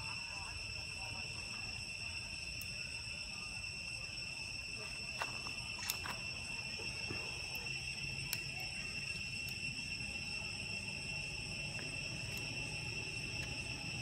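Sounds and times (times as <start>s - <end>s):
insects droning: 0.0s - 14.0s
sharp clicks: 5.8s - 6.2s.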